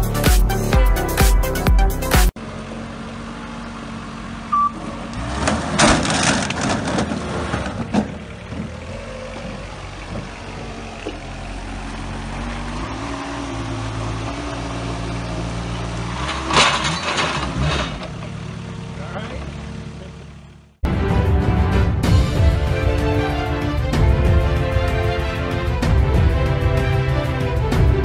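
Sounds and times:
forklift engine running: 0:02.3 - 0:28.0
metal pipes clattering to ground: 0:16.2 - 0:18.2.

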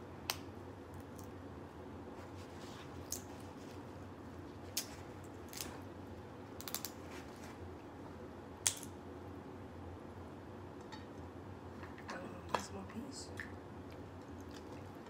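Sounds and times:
shellfish shells cracking: 0:04.7 - 0:05.8, 0:06.5 - 0:07.0.

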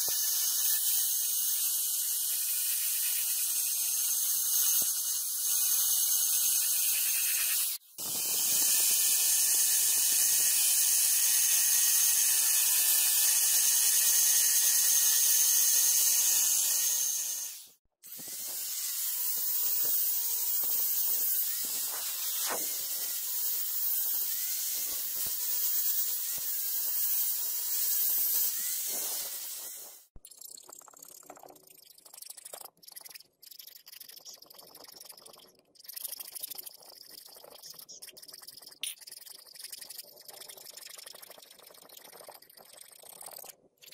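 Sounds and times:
rotary tool grinding whine: 0:00.0 - 0:30.2
angle grinder sanding steel: 0:18.2 - 0:30.0.

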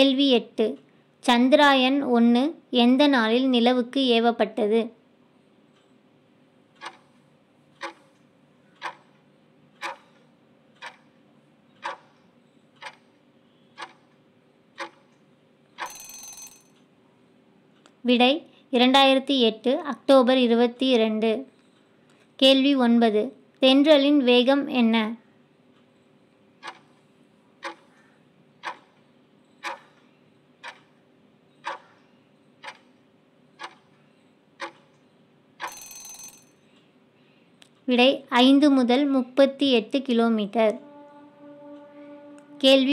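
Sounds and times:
clock ticking: 0:06.6 - 0:16.9, 0:26.5 - 0:36.9
countdown timer ticking: 0:14.8 - 0:15.1, 0:27.6 - 0:27.9, 0:28.6 - 0:29.0, 0:29.6 - 0:30.0, 0:31.6 - 0:32.0, 0:32.6 - 0:33.9, 0:34.6 - 0:34.9, 0:40.5 - 0:42.9.

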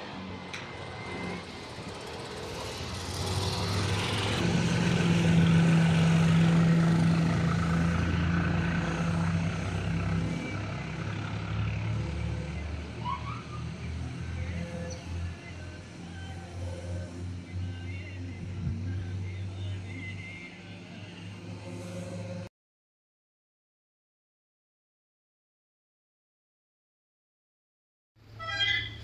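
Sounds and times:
passing vehicle engine drone: 0:00.0 - 0:22.5.

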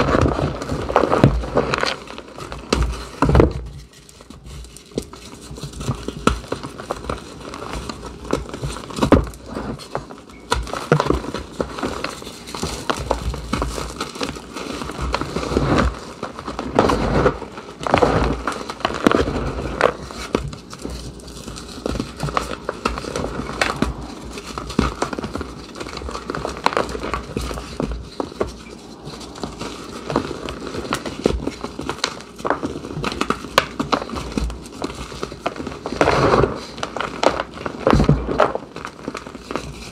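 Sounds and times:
chalk crunching and crumbling: 0:00.0 - 0:39.9.

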